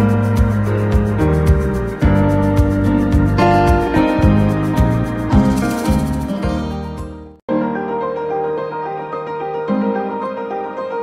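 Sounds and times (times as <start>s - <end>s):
background music with steady beat: 0.0s - 7.4s
tune with held notes: 0.0s - 7.4s.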